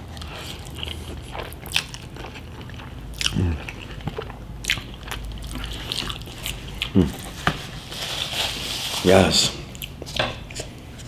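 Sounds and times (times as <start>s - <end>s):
chewing with mouth clicks: 0.0s - 7.5s
person humming: 6.9s - 7.2s.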